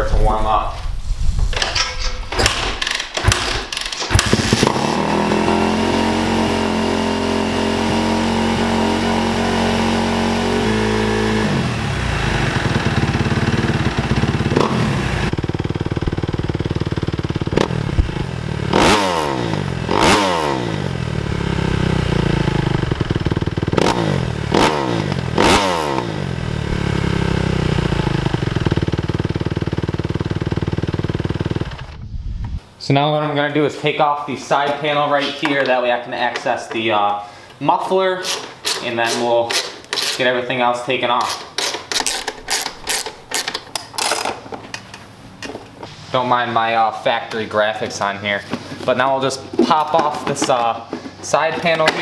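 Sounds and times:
motorcycle kick-start: 1.6s - 6.7s, 11.5s - 32.0s, 41.3s - 45.5s
engine revving: 4.0s - 32.0s
motorcycle engine idling: 11.6s - 18.8s, 20.7s - 25.5s, 26.1s - 32.0s.

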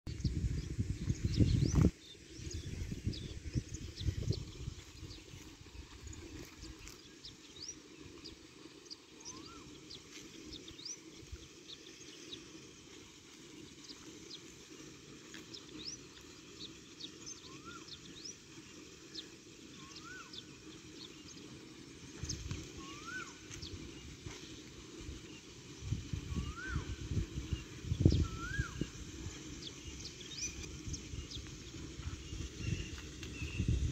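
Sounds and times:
birds chirping: 0.1s - 33.9s
bird whistle rising and falling: 22.8s - 23.4s, 26.3s - 27.0s, 28.0s - 29.0s.

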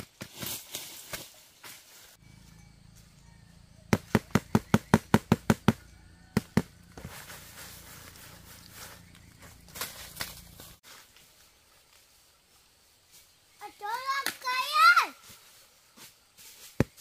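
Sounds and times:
sharp knocks: 3.9s - 7.1s
light rustling: 6.9s - 12.1s.

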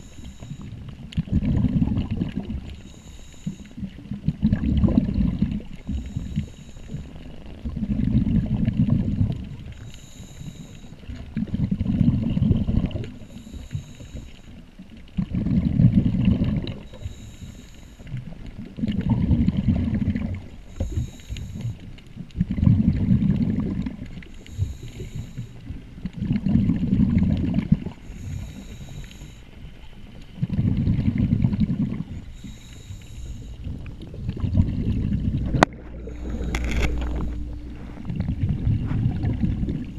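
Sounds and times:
regulator inhale hiss: 0.0s - 0.9s, 2.6s - 4.0s, 5.7s - 7.5s, 9.7s - 11.2s, 13.1s - 14.6s, 16.8s - 18.4s, 20.6s - 21.9s, 24.2s - 25.8s, 27.9s - 29.9s, 32.1s - 33.8s, 36.0s - 38.2s
exhaled bubbles rumbling: 0.0s - 39.9s.

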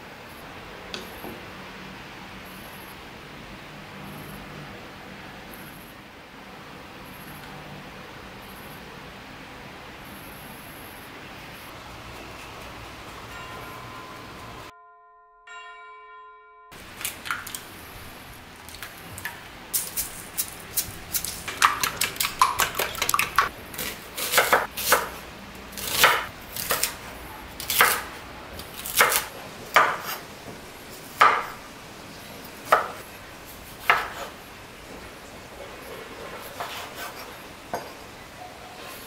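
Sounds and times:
knife chopping on cutting board: 21.1s - 25.2s, 27.6s - 28.1s, 28.8s - 30.2s, 31.2s - 31.6s, 32.7s - 33.0s, 33.7s - 34.3s, 36.4s - 37.9s.

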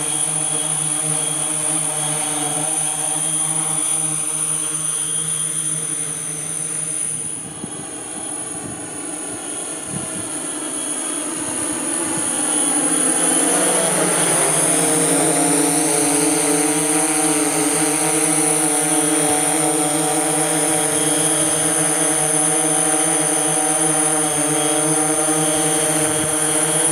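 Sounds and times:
drone propellers humming: 0.0s - 26.9s.

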